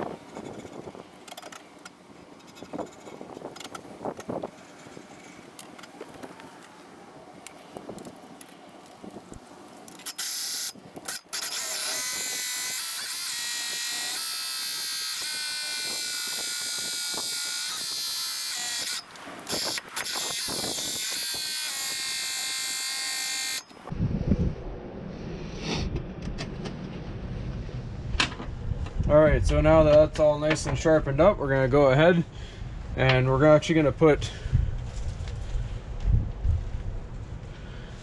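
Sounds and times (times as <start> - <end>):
cordless drill whining: 10.0 - 23.8.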